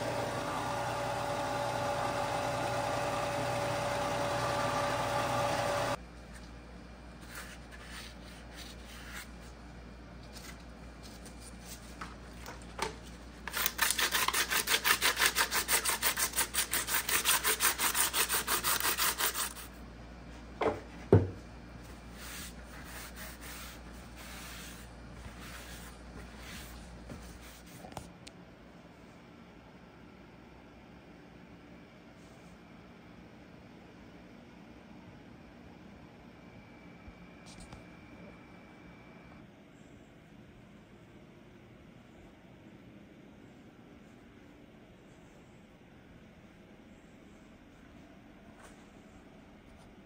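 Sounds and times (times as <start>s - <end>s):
machine hum: 0.0s - 7.0s
sandpaper rasping: 13.5s - 19.7s.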